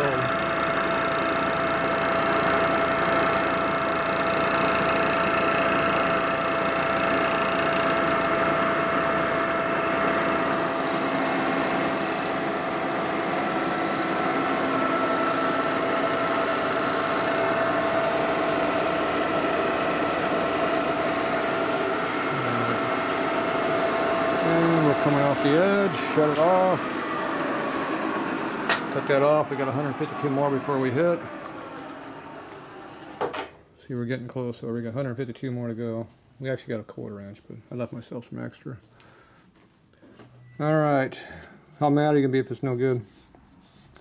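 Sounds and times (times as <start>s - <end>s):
milling machine cutting metal: 0.0s - 33.2s.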